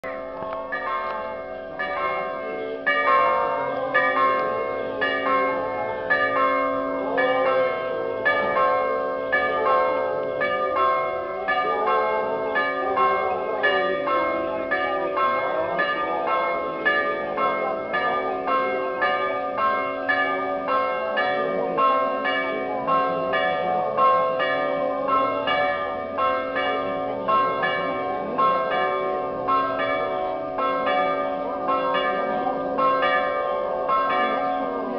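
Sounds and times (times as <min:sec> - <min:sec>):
church bells ringing: 0:00.0 - 0:34.9
faint crowd voices: 0:11.2 - 0:34.9.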